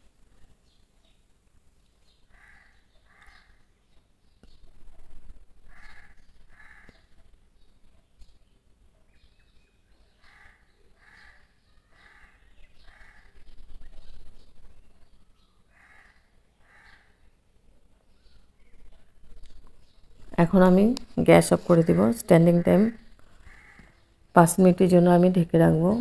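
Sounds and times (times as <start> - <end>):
bird calling harshly: 5.7 - 7.1, 10.2 - 14.2, 15.7 - 17.2, 21.7 - 24.0.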